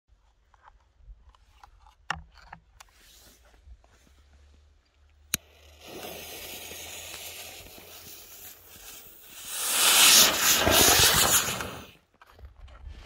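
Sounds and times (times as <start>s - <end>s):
fuse sputtering and hissing: 5.3s - 12.0s
firework rushing hiss: 5.4s - 12.0s.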